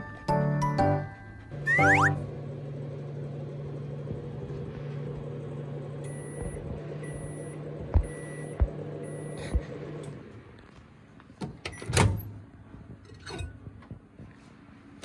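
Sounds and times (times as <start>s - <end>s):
microwave oven humming: 0.0s - 11.0s
short high beeps: 1.7s - 2.2s, 6.1s - 9.6s
dull thumps: 7.8s - 8.8s.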